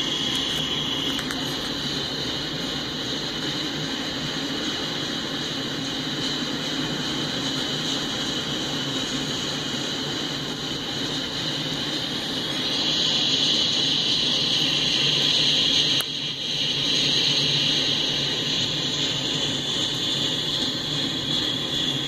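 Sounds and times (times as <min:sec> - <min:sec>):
wheels hissing on rails: 0:00.0 - 0:22.0.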